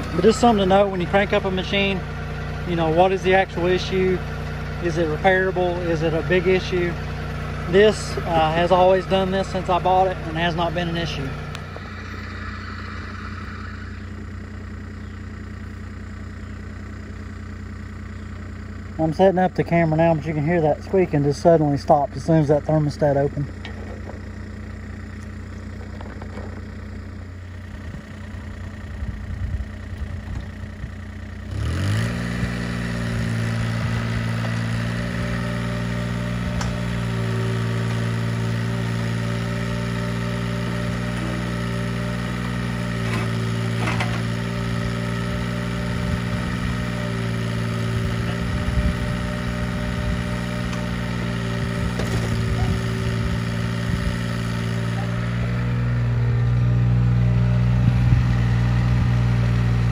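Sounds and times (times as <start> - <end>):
diesel engine idling and revving: 0.0 - 59.9
engine knocks: 22.7 - 31.3, 42.4 - 44.5, 50.1 - 55.4.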